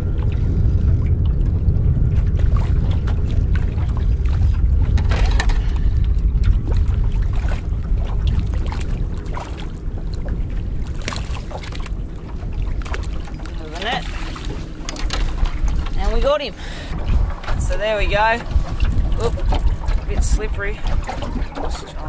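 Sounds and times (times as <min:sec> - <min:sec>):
fish splashing in water: 0:00.0 - 0:15.9
wind on microphone: 0:00.0 - 0:22.0.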